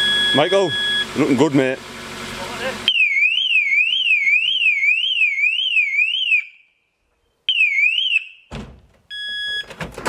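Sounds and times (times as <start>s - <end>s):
car alarm siren wailing: 2.9s - 6.7s, 7.5s - 8.5s.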